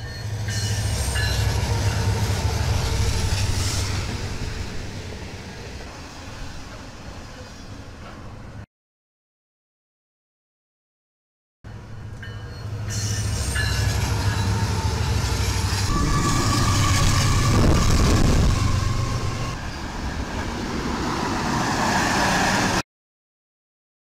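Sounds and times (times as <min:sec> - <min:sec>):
locomotive rumble: 0:11.8 - 0:22.8
train wheels rolling on rails: 0:11.9 - 0:22.8
high wheel squeal: 0:12.5 - 0:20.0.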